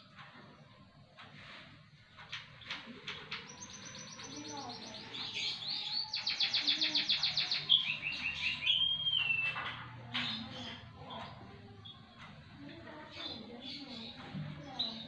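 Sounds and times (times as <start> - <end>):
bird singing trills and whistles: 3.3 - 12.1.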